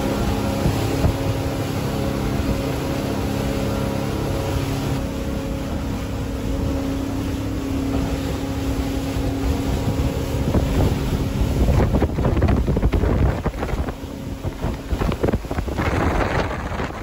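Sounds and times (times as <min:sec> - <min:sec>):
outboard motors humming: 0:00.0 - 0:17.0
wind buffeting microphone: 0:00.0 - 0:17.0.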